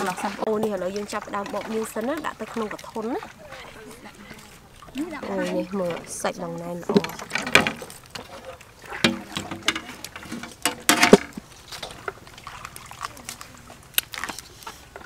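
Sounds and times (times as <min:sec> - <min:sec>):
stems rustling: 0:00.0 - 0:15.0.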